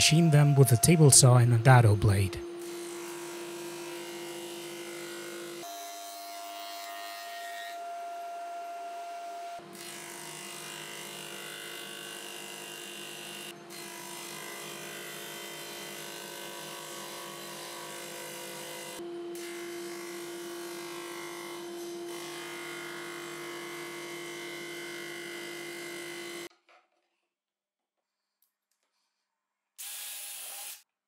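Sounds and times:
table saw motor running: 0.0 - 26.5
saw blade cutting plywood: 9.6 - 26.5.

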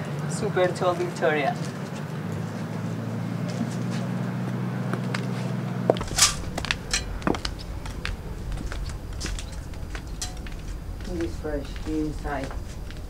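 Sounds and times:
low hum: 2.5 - 13.0
high heel footsteps: 3.4 - 13.0.

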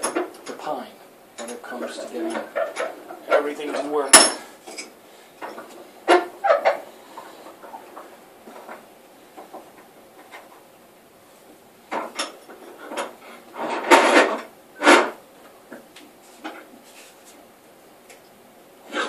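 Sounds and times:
wooden board scraping and knocking: 11.9 - 15.2.

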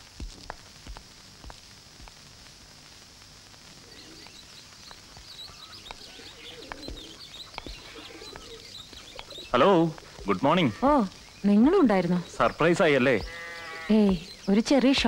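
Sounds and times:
faint steady hiss: 0.0 - 15.0
birds chirping: 3.7 - 15.0
dove cooing: 3.8 - 4.3, 5.5 - 10.5.

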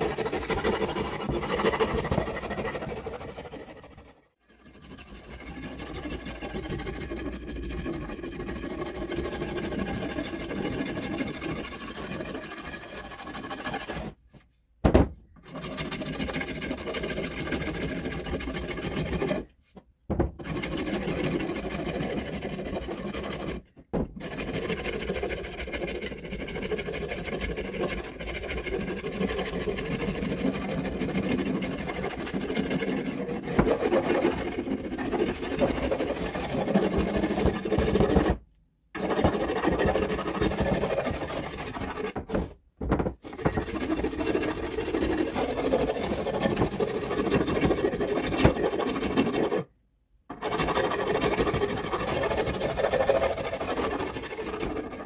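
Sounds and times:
rasp scraping wood: 0.0 - 49.7, 50.3 - 55.0.

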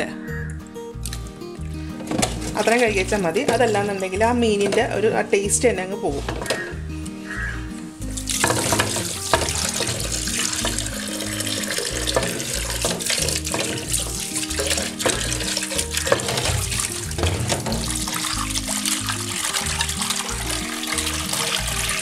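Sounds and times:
background music: 0.0 - 22.0
tap water splashing into bowl: 8.2 - 22.0.

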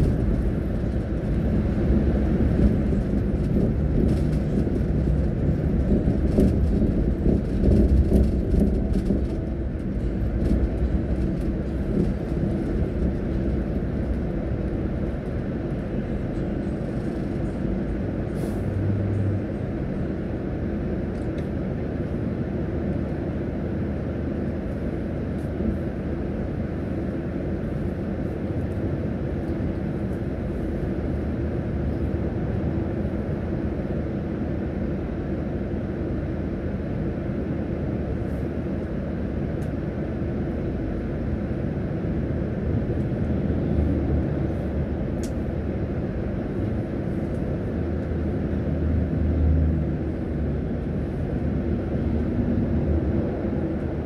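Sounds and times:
bus engine idling: 0.0 - 54.0
passing traffic: 0.0 - 54.0.

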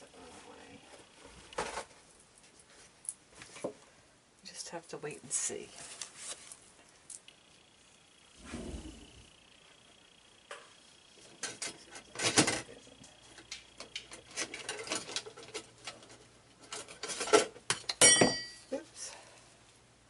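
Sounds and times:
kitchen utensils clattering: 16.7 - 18.6
ringing clink: 18.0 - 18.7.

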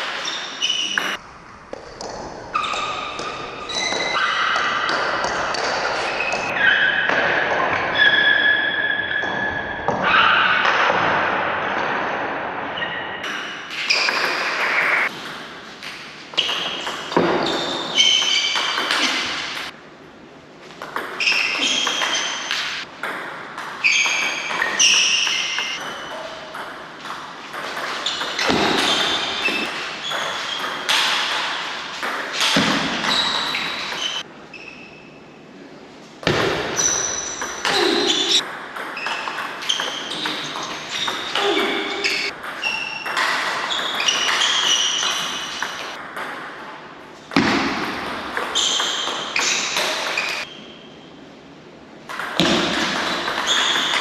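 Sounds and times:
table tennis ball hits: 0.0 - 8.6, 9.2 - 12.3, 13.2 - 19.8, 20.6 - 34.3, 36.2 - 50.7, 52.0 - 54.0.

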